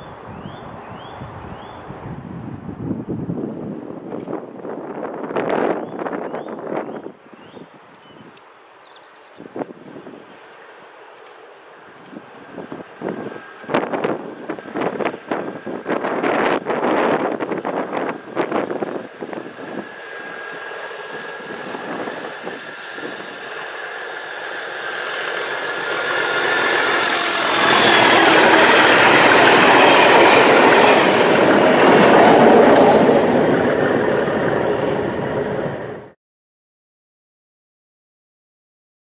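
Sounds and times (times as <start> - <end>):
diesel locomotive engine working hard: 9.9 - 36.2.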